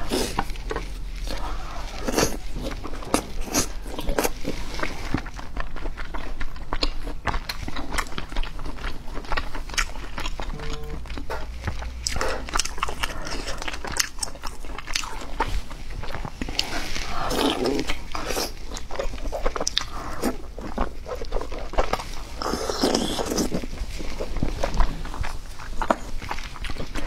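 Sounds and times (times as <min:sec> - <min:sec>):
close chewing and mouth clicks: 0:00.0 - 0:27.0.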